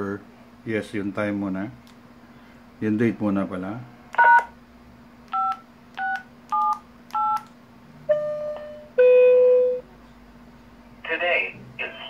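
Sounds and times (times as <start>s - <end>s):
keypad tones: 5.3s - 7.5s.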